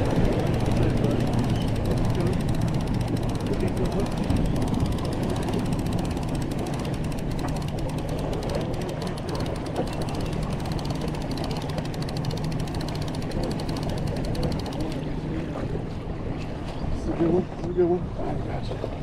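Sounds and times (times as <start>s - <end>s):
boat engine droning: 0.0s - 19.0s
water noise: 0.0s - 19.0s
wind: 0.0s - 19.0s.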